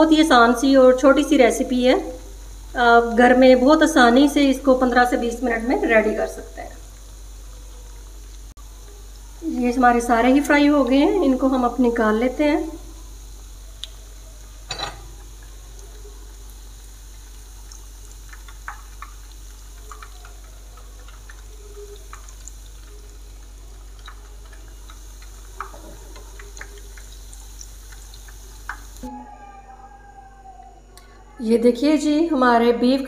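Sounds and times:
cutlets sizzling in oil: 0:00.0 - 0:29.1
knocks in pan: 0:14.7 - 0:15.3.

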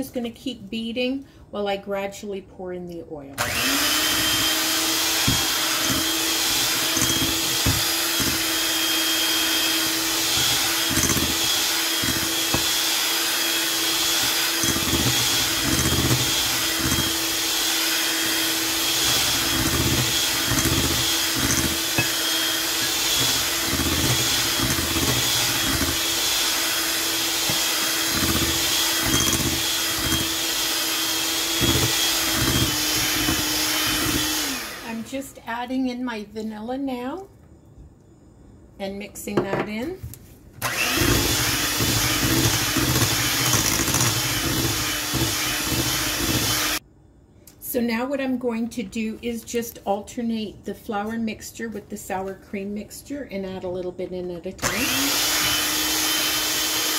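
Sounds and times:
electric hand mixer running: 0:03.4 - 0:35.1, 0:40.6 - 0:46.8, 0:54.6 - 0:56.9.

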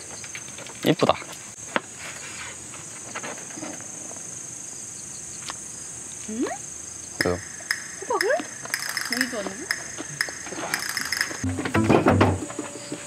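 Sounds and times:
insects chirring: 0:00.0 - 0:13.0
utensils clicking: 0:07.2 - 0:11.5.

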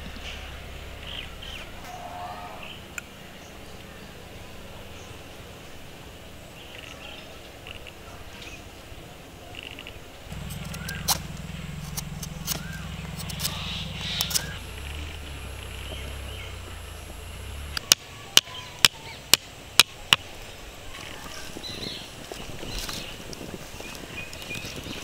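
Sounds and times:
birds chirping: 0:00.0 - 0:25.0
knife clicking and scraping bamboo: 0:10.3 - 0:15.1
low steady hum: 0:10.3 - 0:20.8.

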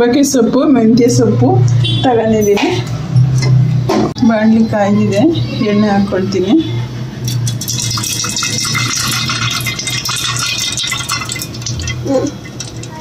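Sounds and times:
oil pouring: 0:07.3 - 0:12.9
hot oil sizzling and spitting: 0:07.3 - 0:13.0.

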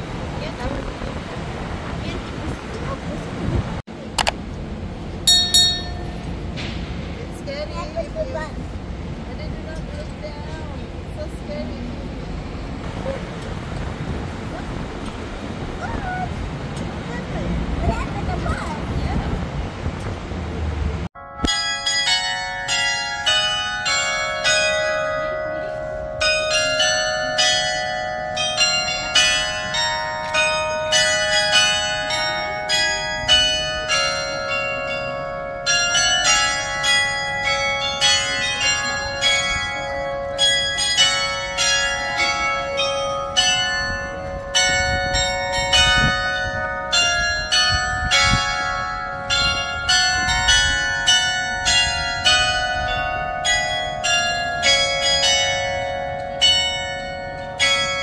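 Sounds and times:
chime of small bells melody: 0:05.3 - 0:06.4, 0:21.2 - 0:58.0.

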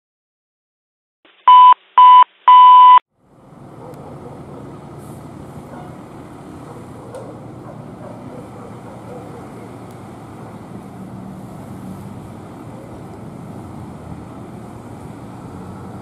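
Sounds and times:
electronic beeps: 0:01.4 - 0:03.0
fire truck engine rumble: 0:03.1 - 0:16.0.

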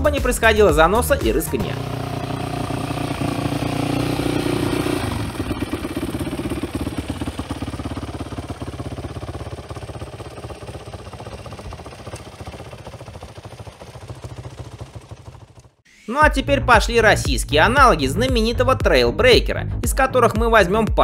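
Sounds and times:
motorcycle engine running: 0:00.0 - 0:15.8.

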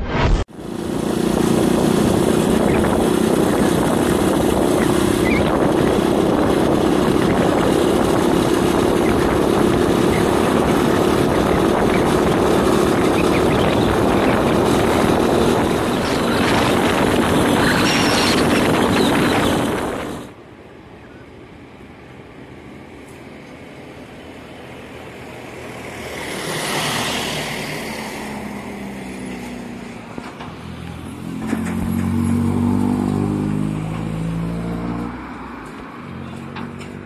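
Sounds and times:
road and wind rush: 0:00.0 - 0:37.0
vehicle engine drone: 0:00.0 - 0:37.0
wind buffeting microphone: 0:00.6 - 0:20.4.

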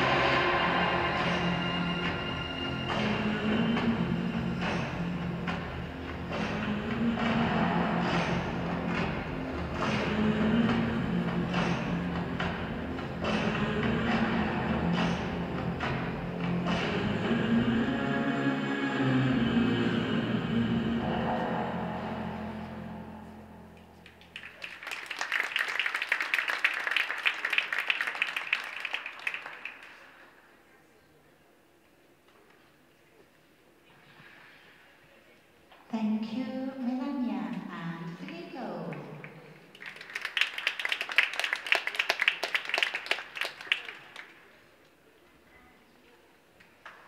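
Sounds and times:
audience applause: 0:24.2 - 0:30.2, 0:39.7 - 0:44.4.

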